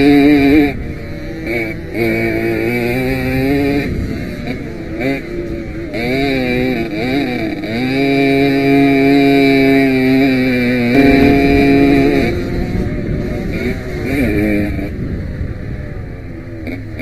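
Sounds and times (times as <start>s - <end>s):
moped engine revving: 7.4s - 14.9s.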